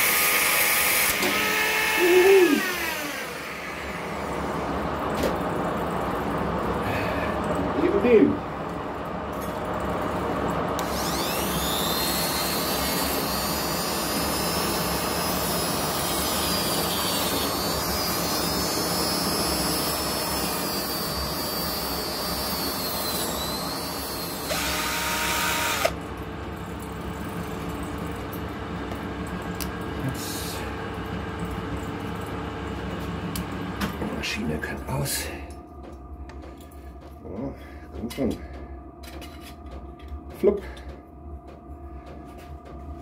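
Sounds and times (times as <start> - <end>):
rotary tool high whine: 0.0 - 4.8, 10.8 - 26.0
low machine hum: 1.1 - 43.0.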